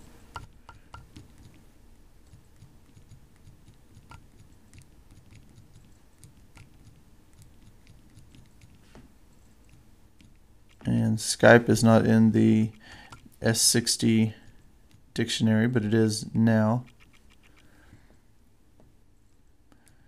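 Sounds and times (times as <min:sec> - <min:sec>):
thumbs tapping touchscreen keypad: 0:00.3 - 0:01.6, 0:02.2 - 0:10.8.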